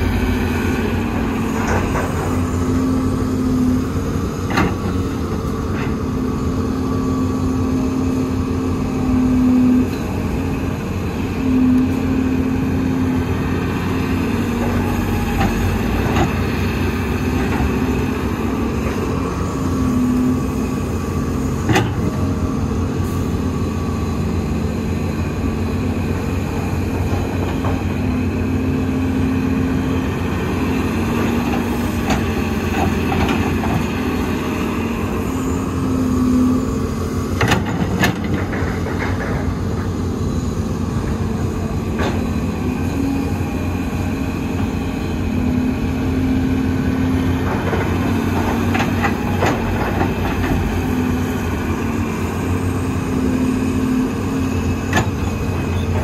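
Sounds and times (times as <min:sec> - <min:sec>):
heavy diesel machinery running: 0:00.0 - 0:56.0.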